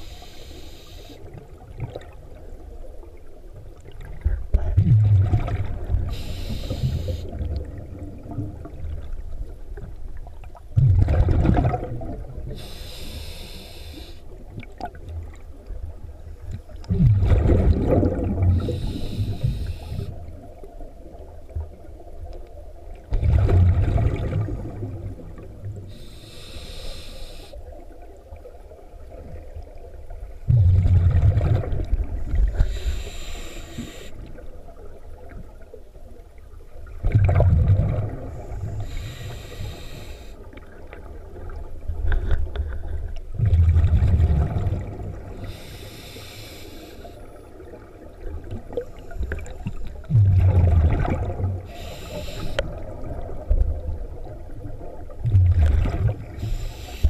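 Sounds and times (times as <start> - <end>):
regulator inhale hiss: 0.0 - 1.3, 6.1 - 7.4, 12.5 - 14.4, 18.6 - 20.2, 25.8 - 27.7, 32.5 - 34.3, 38.4 - 40.5, 45.3 - 47.4, 48.7 - 49.7, 51.5 - 52.8, 56.3 - 57.0
exhaled bubbles rumbling: 1.3 - 12.7, 14.3 - 26.0, 27.6 - 33.1, 34.2 - 39.2, 40.4 - 45.6, 47.2 - 51.8, 52.5 - 56.9.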